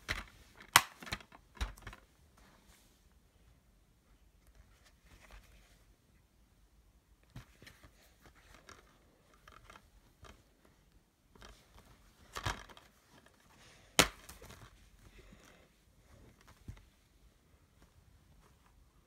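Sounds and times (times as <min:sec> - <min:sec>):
plastic case taps and rustles: 0:00.0 - 0:02.0.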